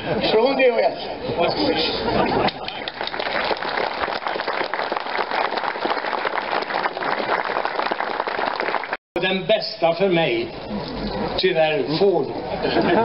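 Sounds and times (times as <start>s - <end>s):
crowd applauding: 2.5s - 9.0s.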